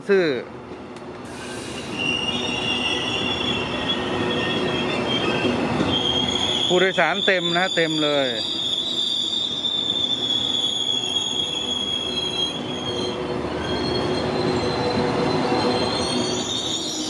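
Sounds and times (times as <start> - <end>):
rumble of wheels on track: 0.5 - 6.7
train wheels squealing on rails: 1.2 - 17.0.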